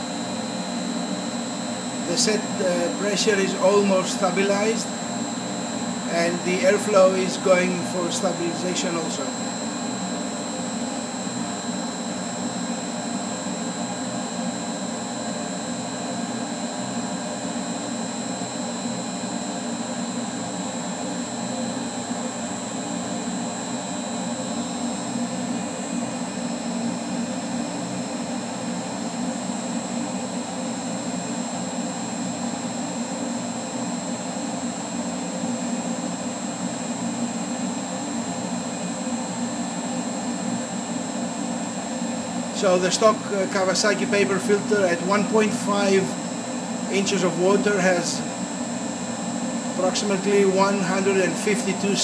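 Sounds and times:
blower rushing air: 0.0 - 15.7, 39.4 - 52.0
high steady whine: 0.0 - 52.0.

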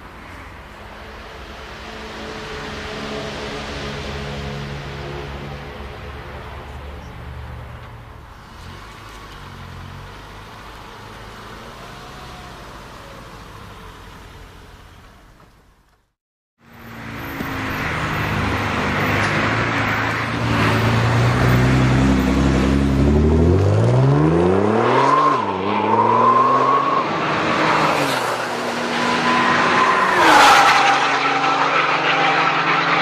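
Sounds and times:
sports car engine accelerating: 17.2 - 29.3
tyre squeal: 25.0 - 33.0.

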